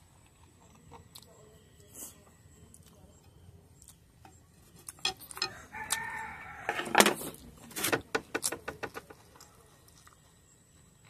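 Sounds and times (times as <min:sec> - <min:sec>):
rooster crowing: 0:05.4 - 0:07.1.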